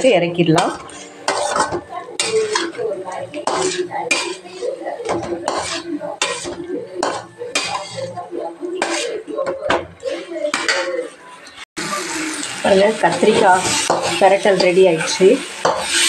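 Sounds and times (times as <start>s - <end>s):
metal spatula scraping steel pan: 0.0s - 11.6s, 12.5s - 16.0s.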